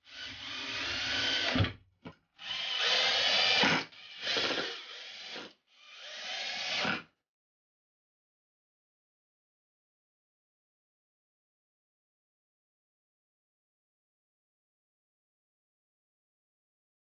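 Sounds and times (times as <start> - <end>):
cordless drill driving screws: 0.1 - 1.7, 2.4 - 7.0.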